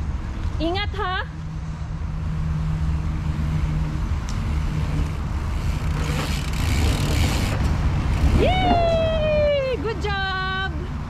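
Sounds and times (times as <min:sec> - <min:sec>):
bicycle tyres rolling: 0:02.8 - 0:09.4
wind on microphone: 0:04.4 - 0:09.5.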